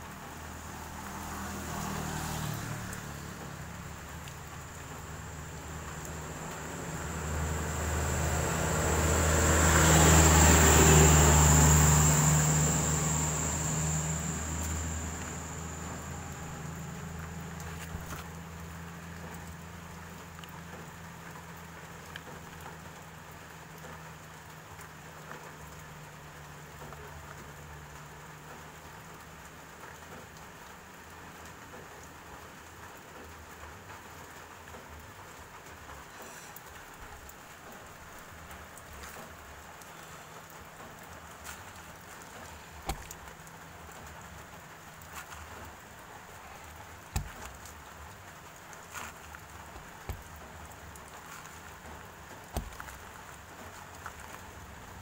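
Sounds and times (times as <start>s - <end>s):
low hum: 3.2s - 18.7s
hot blade cutting rubber: 47.1s - 47.7s, 49.0s - 50.4s, 52.5s - 53.0s.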